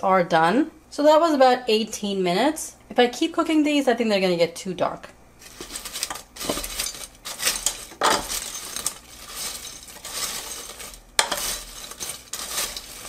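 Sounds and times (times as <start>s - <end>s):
fries scraping and rustling: 5.4s - 13.0s
tongs clinking against basket: 5.5s - 13.0s.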